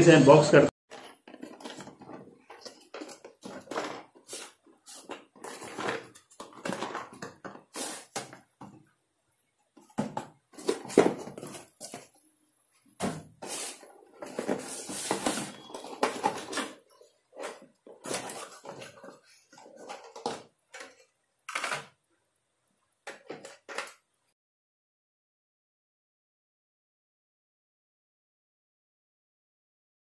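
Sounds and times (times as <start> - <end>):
cardboard box rustling and scraping: 0.9 - 8.1, 13.4 - 16.8.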